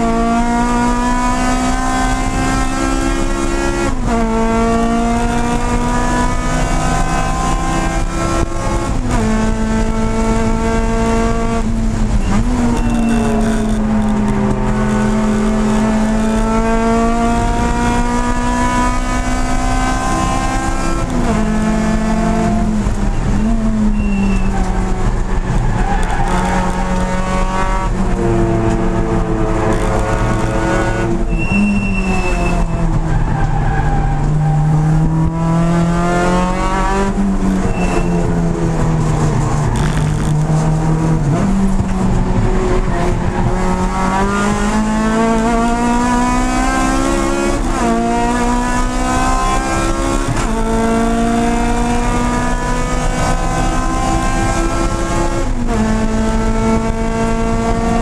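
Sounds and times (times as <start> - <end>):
race car engine at high revs: 0.0 - 58.0
tyre squeal: 12.1 - 14.4, 23.0 - 26.9, 30.9 - 34.7, 37.6 - 38.4.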